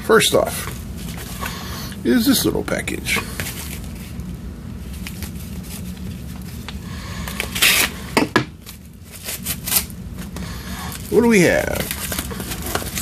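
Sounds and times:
steady low hum: 0:00.0 - 0:13.0
sharp paper crackles: 0:10.9 - 0:13.0.

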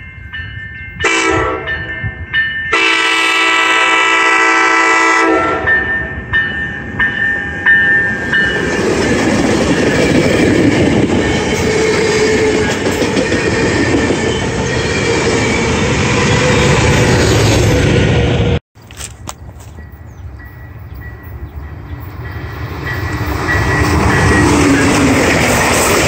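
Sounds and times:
train horn: 0:01.0 - 0:01.9, 0:02.7 - 0:05.9
train wheels rumbling on rails: 0:05.6 - 0:26.0.

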